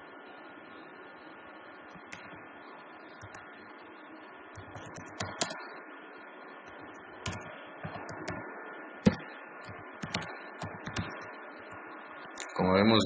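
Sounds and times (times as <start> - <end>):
keyboard typing: 1.9 - 2.4, 4.6 - 5.6, 6.7 - 8.4, 9.0 - 12.5.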